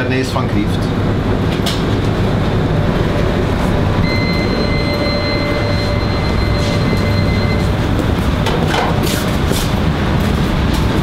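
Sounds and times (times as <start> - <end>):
kitchen ventilation roaring: 0.0 - 11.0
thin high whine: 2.6 - 9.4.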